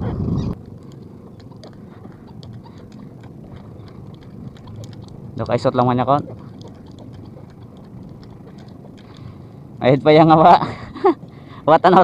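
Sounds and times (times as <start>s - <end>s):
boat engine running: 0.0s - 12.0s
faint clicks and knocks: 0.6s - 9.4s.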